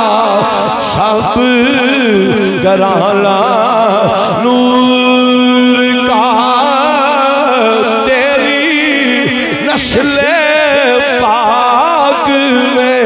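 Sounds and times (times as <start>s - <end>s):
man singing ornamented notes: 0.0s - 13.0s.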